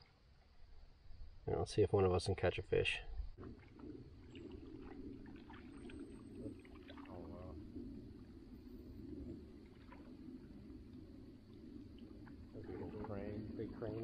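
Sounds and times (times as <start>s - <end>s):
steady low hush: 0.0s - 14.0s
paddle drips and splashes: 3.4s - 14.0s.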